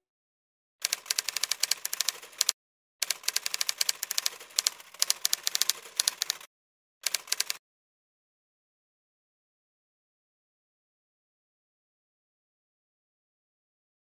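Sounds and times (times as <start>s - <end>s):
typewriter keystroke clicks: 0.8s - 7.6s.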